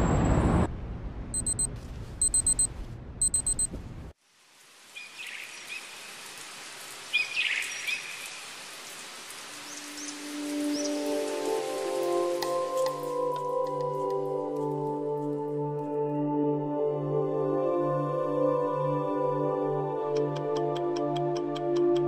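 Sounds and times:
low city hum: 0.0 - 4.2
alarm clock beeping: 1.4 - 3.7
soft outdoor hiss: 4.2 - 15.4.

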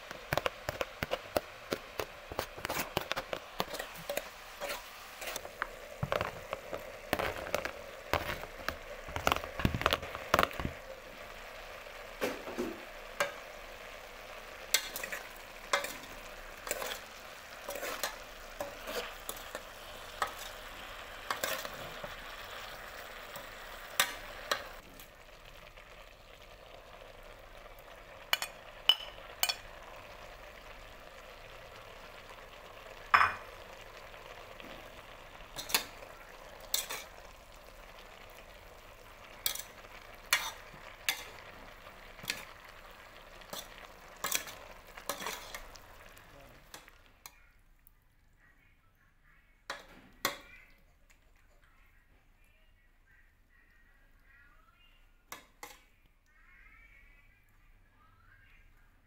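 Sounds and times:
vegetables sizzling: 0.0 - 48.0
utensil scraping a metal pot: 0.3 - 10.8, 14.6 - 22.1, 35.5 - 37.2, 39.4 - 41.5, 43.4 - 45.8.

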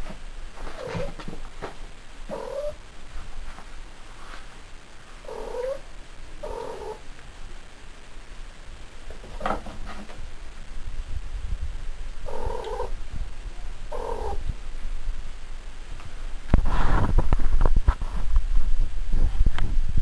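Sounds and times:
cat calling: 2.3 - 2.8, 5.2 - 5.8, 6.4 - 7.0, 12.2 - 13.0, 13.9 - 14.4.

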